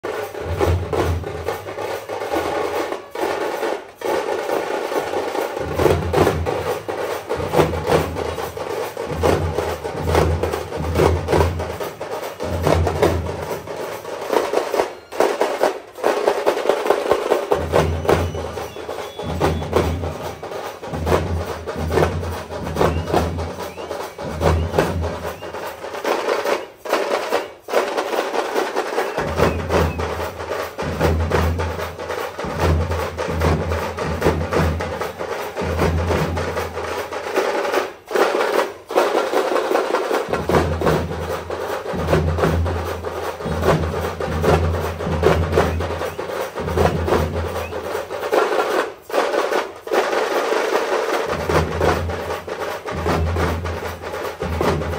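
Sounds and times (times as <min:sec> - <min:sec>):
rapid sharp drum strikes: 0:00.0 - 0:54.9
deep pulsing drum beat: 0:17.6 - 0:25.4.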